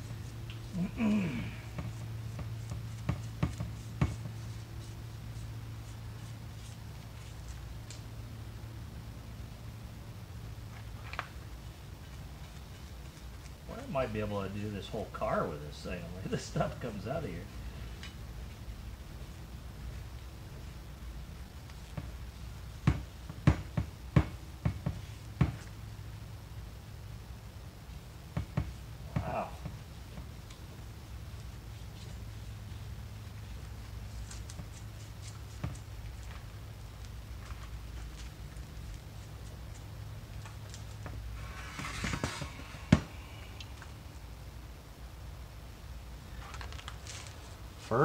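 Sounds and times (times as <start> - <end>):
steady low hum: 0.0 - 48.0
paintbrush rubbing on metal: 1.6 - 7.6.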